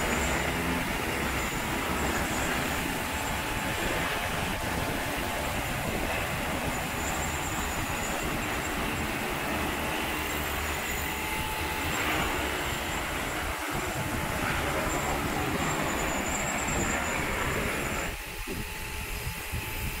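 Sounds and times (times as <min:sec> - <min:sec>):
pressurised water spraying: 0:00.0 - 0:20.0
steady mechanical running noise: 0:00.0 - 0:20.0.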